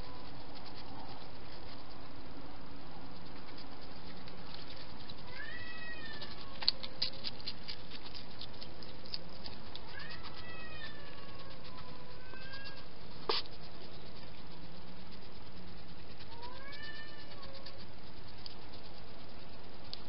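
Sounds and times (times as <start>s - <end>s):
cat meowing: 5.2s - 6.8s, 9.8s - 12.9s, 16.2s - 17.7s.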